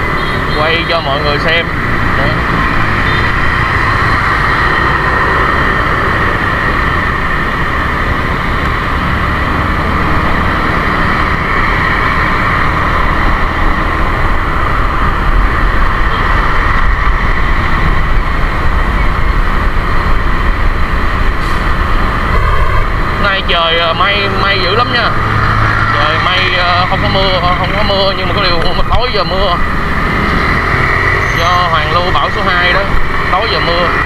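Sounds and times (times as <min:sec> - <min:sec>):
passing traffic: 0:00.0 - 0:34.0
scooter engine: 0:00.0 - 0:34.0
wind buffeting microphone: 0:01.7 - 0:23.2.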